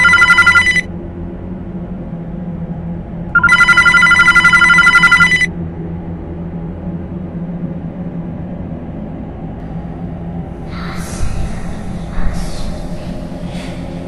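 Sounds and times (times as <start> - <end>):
telephone ringing: 0.0 - 0.9, 3.4 - 5.5
low steady hum: 0.0 - 14.0.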